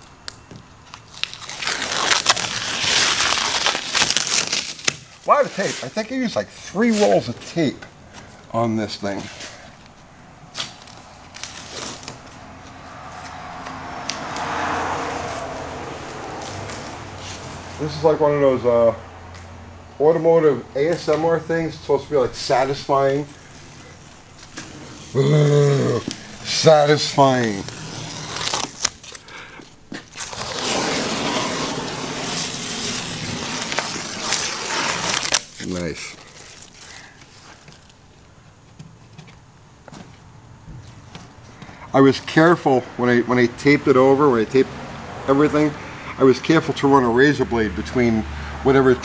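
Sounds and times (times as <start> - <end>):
masking tape peeling: 0.0 - 8.3, 9.2 - 17.9, 22.4 - 38.0.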